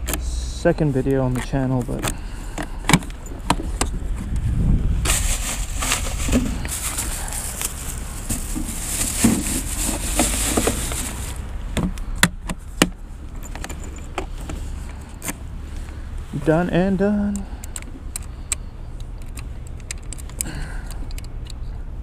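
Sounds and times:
plastic bag rustling: 5.0 - 11.4.

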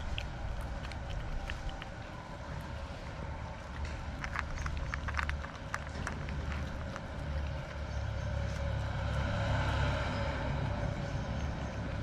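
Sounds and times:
cat chewing wet food: 0.0 - 9.6
vehicle engine rumbling: 0.0 - 12.0.

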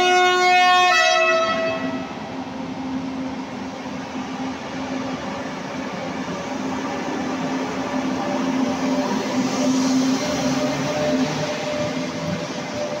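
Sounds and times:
two-tone train horn: 0.0 - 2.2
train rolling slowly: 0.0 - 13.0.

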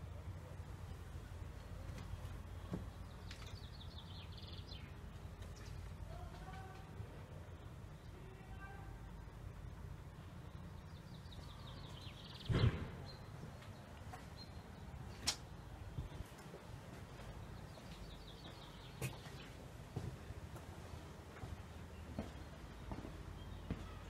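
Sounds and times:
door thudding shut: 12.5 - 13.1.

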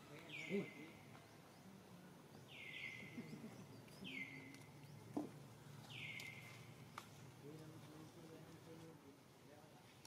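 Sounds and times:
faint bird calls: 0.1 - 8.4.

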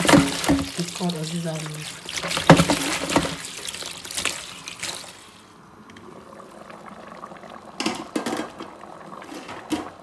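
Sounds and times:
thick soup bubbling and popping: 5.8 - 10.0.

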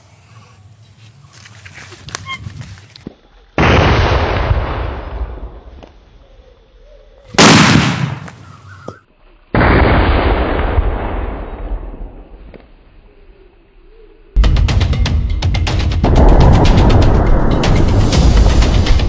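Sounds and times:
firecracker bangs: 7.4 - 8.4.

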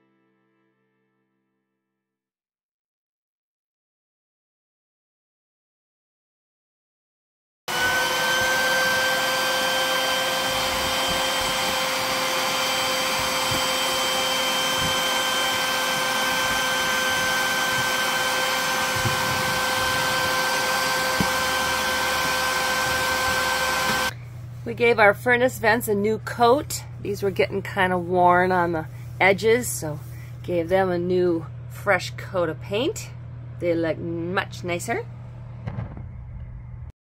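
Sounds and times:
shop vac running: 7.7 - 32.8.

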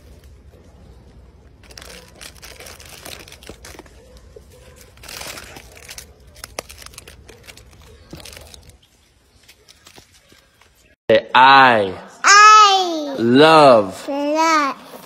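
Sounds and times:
plastic wrappers crinkling: 1.5 - 11.0.

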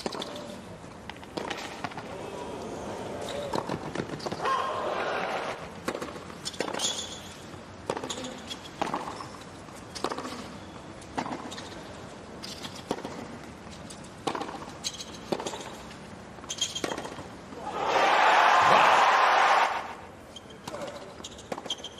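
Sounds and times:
tennis rackets hitting ball: 5.8 - 7.0, 14.2 - 15.8
shoe squeaks on hard court: 6.4 - 13.0, 14.7 - 17.2, 20.3 - 21.9.

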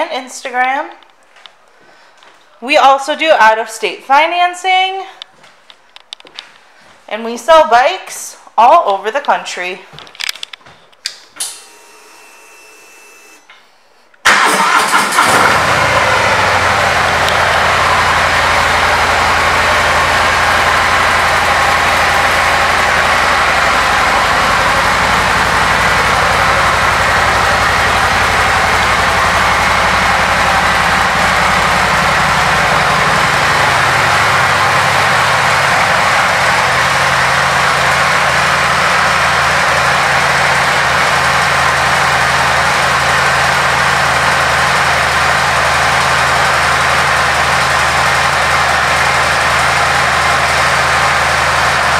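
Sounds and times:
motorcycle engine starting and idling: 14.2 - 51.9.

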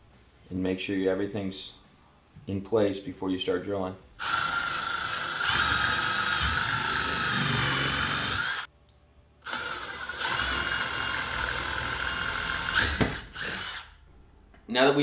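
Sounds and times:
impact driver motor whining: 4.2 - 8.7.

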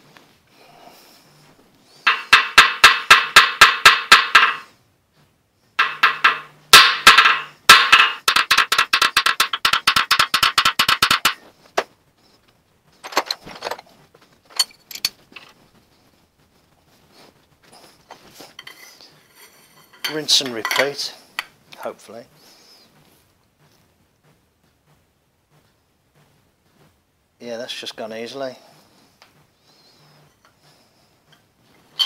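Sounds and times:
hammer striking metal: 2.1 - 4.7, 5.8 - 11.4.

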